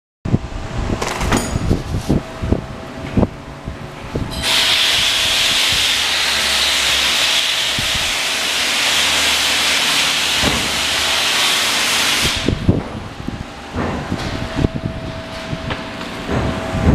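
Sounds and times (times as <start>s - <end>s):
rushing air hiss: 4.3s - 12.6s.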